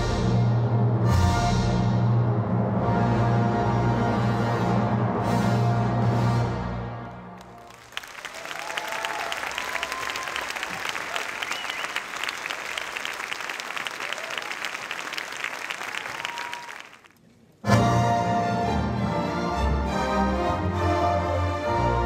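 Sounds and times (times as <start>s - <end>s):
orchestral music: 0.0s - 7.7s, 17.6s - 22.0s
audience applauding: 7.4s - 17.2s.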